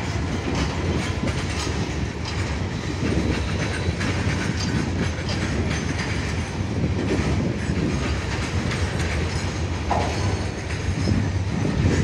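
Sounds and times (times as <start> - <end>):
low train rumble: 0.0 - 12.0
train wheels clattering over rails: 0.0 - 12.0
wheel squeal: 2.6 - 6.1.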